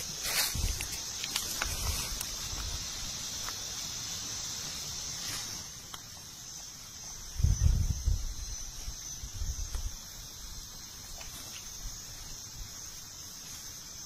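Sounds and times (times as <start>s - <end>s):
footsteps in dry leaves: 0.0s - 3.9s
insects droning: 0.0s - 14.0s.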